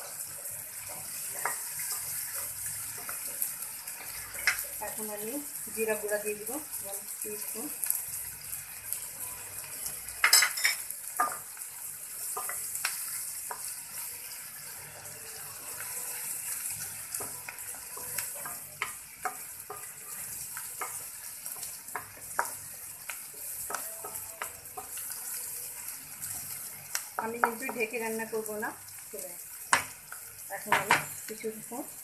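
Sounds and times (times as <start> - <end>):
food sizzling in oil: 0.0 - 32.0
wooden spatula knocking on pan: 27.2 - 27.9, 30.7 - 31.1.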